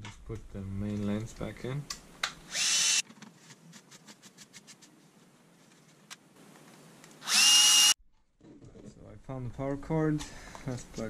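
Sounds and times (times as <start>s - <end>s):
cordless screwdriver whine: 2.5s - 3.0s, 7.2s - 8.0s.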